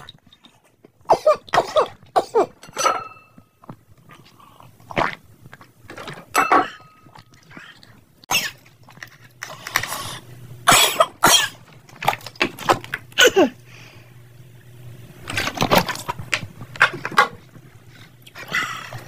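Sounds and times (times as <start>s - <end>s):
person coughing: 1.0s - 2.6s, 10.7s - 11.6s, 13.2s - 13.6s.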